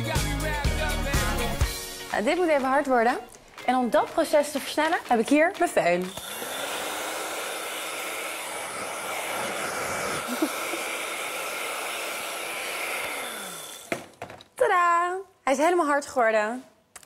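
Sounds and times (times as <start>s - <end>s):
hair dryer blowing: 6.0s - 14.1s.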